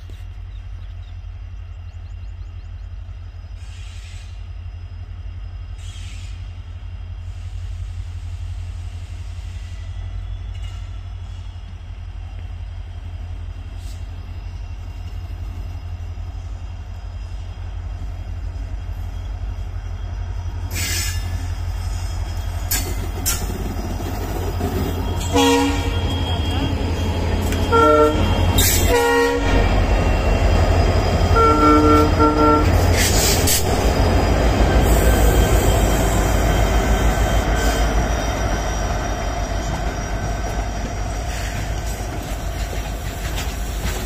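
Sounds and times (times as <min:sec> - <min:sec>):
diesel locomotive engines throbbing: 0:00.0 - 0:44.0
train wheels clacking on rail joints: 0:22.2 - 0:29.1, 0:32.0 - 0:44.0.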